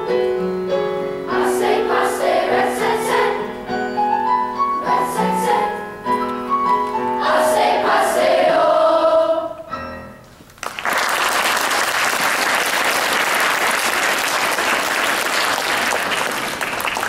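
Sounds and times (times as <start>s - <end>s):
children's choir singing: 1.2s - 3.8s, 4.7s - 6.2s, 6.9s - 9.7s
audience applause: 10.6s - 17.0s.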